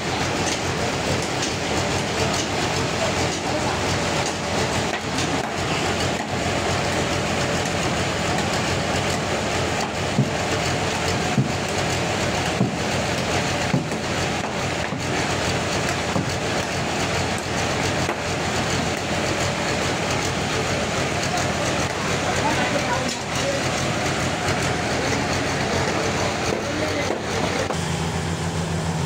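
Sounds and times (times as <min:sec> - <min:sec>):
sawmill sawing log: 0:00.0 - 0:29.0
sharp knocks: 0:09.8 - 0:11.8, 0:12.4 - 0:15.2.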